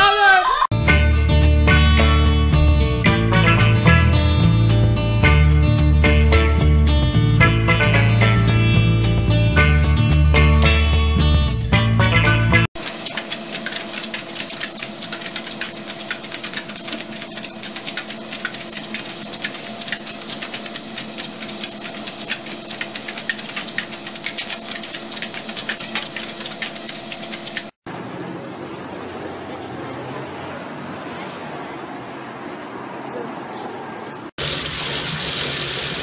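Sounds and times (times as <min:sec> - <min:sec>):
treadmill humming: 0:12.8 - 0:27.8
dog paws clicking on belt: 0:13.0 - 0:27.8
outdoor street noise: 0:27.8 - 0:34.4.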